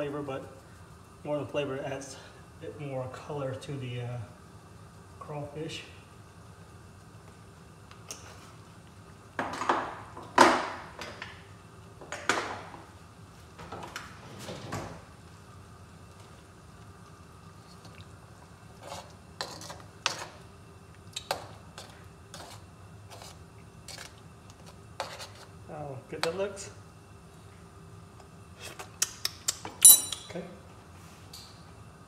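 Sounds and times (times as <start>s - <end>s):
spoon scraping a pan: 18.8s - 20.4s, 21.8s - 25.5s.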